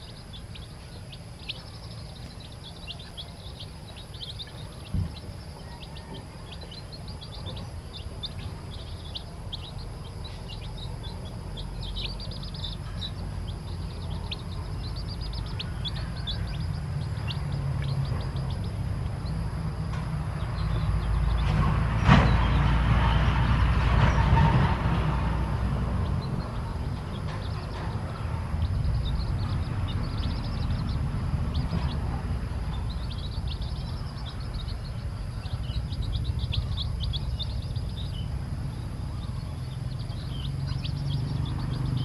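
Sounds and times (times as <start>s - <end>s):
chicks peeping: 0.0s - 42.0s
low rumble: 0.0s - 42.0s.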